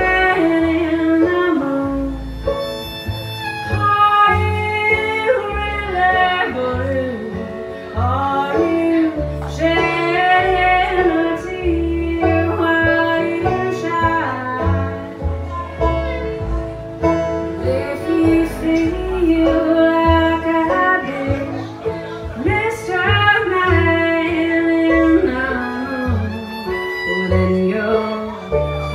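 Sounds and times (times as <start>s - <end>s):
woman singing: 0.0s - 2.3s, 3.8s - 15.1s, 17.6s - 21.8s, 22.4s - 28.5s
strummed acoustic guitar: 0.0s - 28.9s
upright bass low notes: 0.0s - 28.9s.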